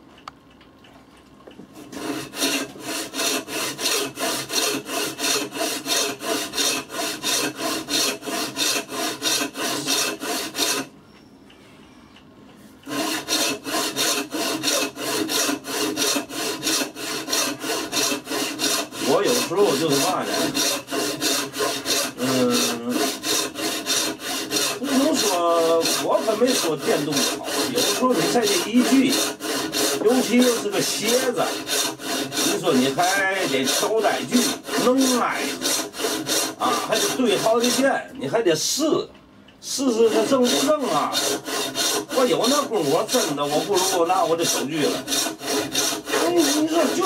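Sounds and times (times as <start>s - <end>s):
hand saw cutting wood: 1.8s - 10.9s, 12.8s - 38.1s, 39.7s - 47.0s
wavering squeaky tones: 11.0s - 12.2s.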